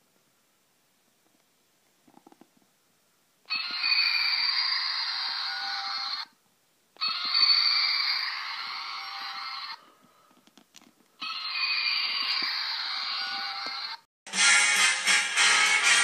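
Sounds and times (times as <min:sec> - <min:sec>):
toy roar through small speaker: 0:03.5 - 0:06.3, 0:07.0 - 0:09.8, 0:11.2 - 0:14.0.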